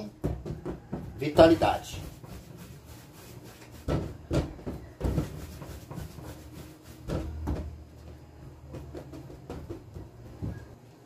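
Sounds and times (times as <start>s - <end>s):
dough knocking on steel worktop: 3.7s - 7.8s, 8.6s - 10.7s.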